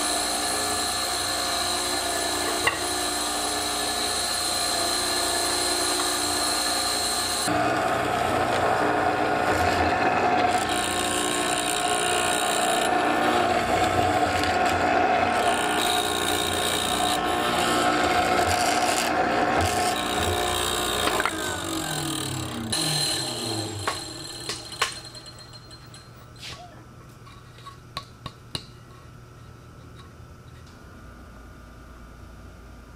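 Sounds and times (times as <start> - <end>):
mortiser chisel cutting wood: 0.0 - 25.3
motor winding down: 4.8 - 25.2.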